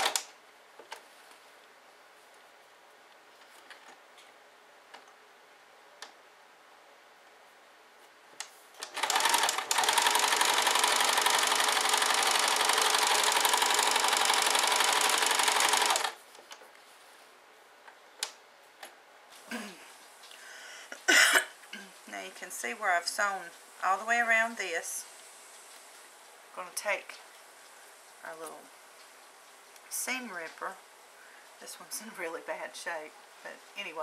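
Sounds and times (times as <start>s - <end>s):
sewing machine stitching: 0.0s - 0.2s, 8.8s - 16.2s.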